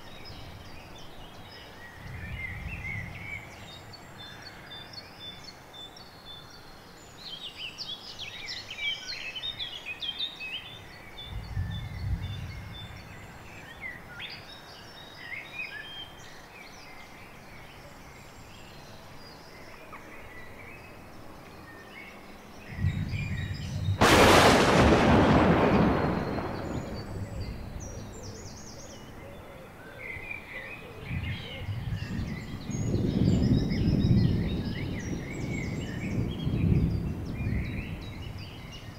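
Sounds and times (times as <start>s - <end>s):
birds singing: 0.0s - 38.9s
low rumble: 22.7s - 28.9s
loud crash: 24.0s - 27.8s.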